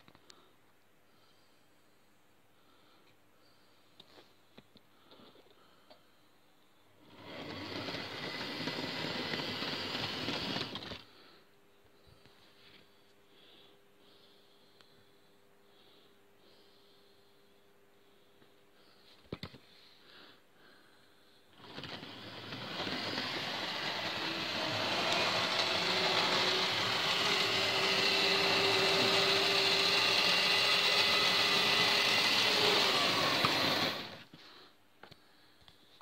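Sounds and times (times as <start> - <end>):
model train motor whirring: 7.0 - 11.0, 21.6 - 34.3.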